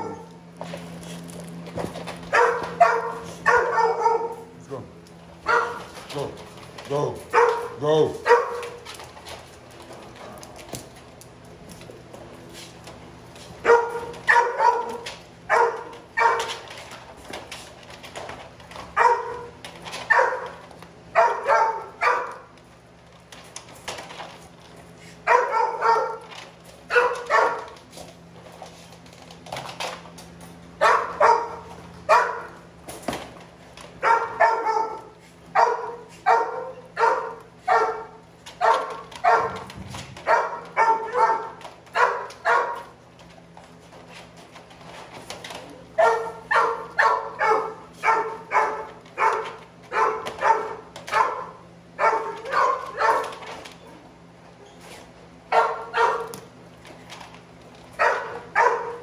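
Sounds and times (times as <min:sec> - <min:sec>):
dog barking: 0:02.3 - 0:04.5, 0:05.4 - 0:05.8, 0:07.3 - 0:08.7, 0:13.6 - 0:16.5, 0:19.0 - 0:19.5, 0:20.1 - 0:20.6, 0:21.2 - 0:22.4, 0:25.2 - 0:26.2, 0:26.9 - 0:27.7, 0:30.8 - 0:32.5, 0:34.0 - 0:42.9, 0:46.0 - 0:53.3, 0:55.5 - 0:56.3, 0:58.0 - 0:59.0.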